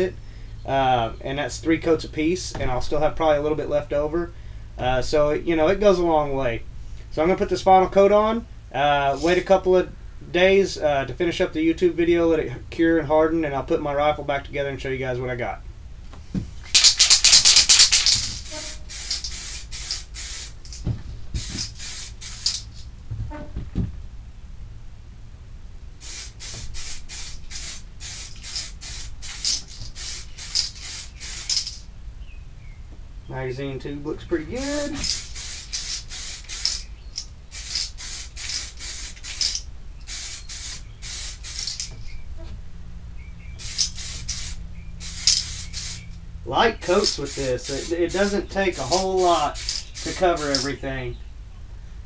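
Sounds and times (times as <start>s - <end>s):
aerosol can spraying: 16.6s - 22.9s, 26.0s - 31.8s, 34.6s - 42.1s, 43.6s - 46.1s, 46.8s - 50.8s
soft handling knocks: 20.7s - 21.6s, 23.0s - 24.1s.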